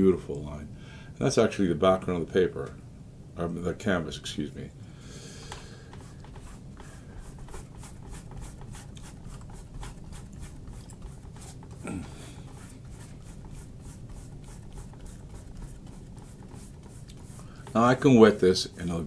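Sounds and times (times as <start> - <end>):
paintbrush scratching on canvas: 5.9 - 19.0
person murmuring: 11.8 - 12.4.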